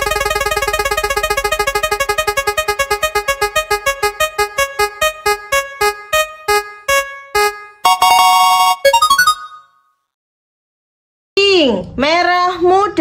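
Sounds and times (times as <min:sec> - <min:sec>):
electronic wheel ticking: 0:00.0 - 0:06.6.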